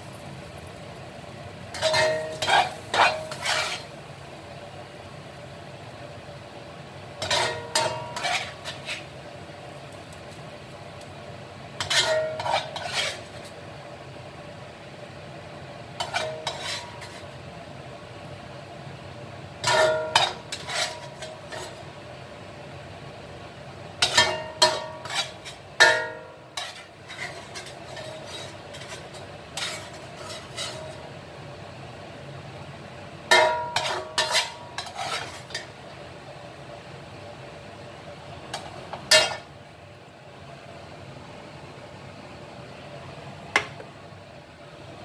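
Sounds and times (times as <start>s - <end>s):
low background hum: 0.0s - 45.0s
spatula scraping metal wok: 1.6s - 4.1s, 7.2s - 9.3s, 11.8s - 13.6s, 16.0s - 17.4s, 19.6s - 21.9s, 24.0s - 31.1s, 33.3s - 35.8s, 38.5s - 39.5s.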